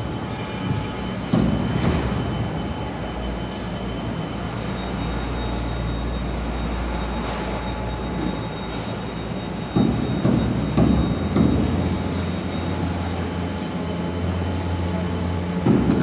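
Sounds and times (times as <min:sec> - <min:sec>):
machinery low rumble: 0:00.0 - 0:16.0.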